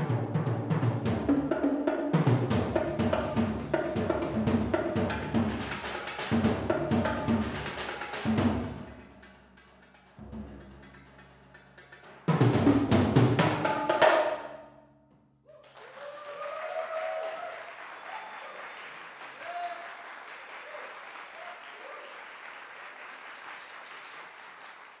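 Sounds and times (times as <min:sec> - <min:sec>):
audience shouts: 0:15.6 - 0:18.7, 0:19.3 - 0:22.1
audience applauding: 0:15.6 - 0:25.0.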